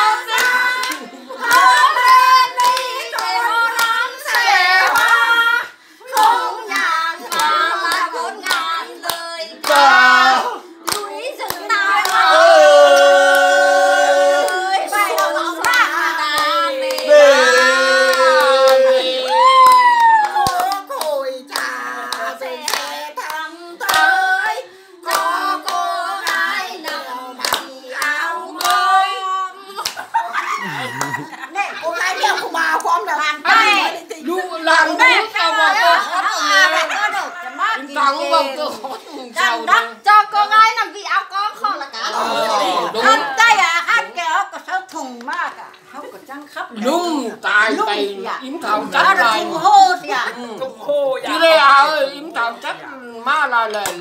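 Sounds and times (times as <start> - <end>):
group clapping along: 0.0 - 31.2, 53.6 - 54.0
women singing: 0.0 - 44.8, 45.9 - 50.6
hands clapping: 0.3 - 5.2, 18.1 - 24.1, 25.1 - 28.8, 29.8 - 30.1, 53.7 - 54.0.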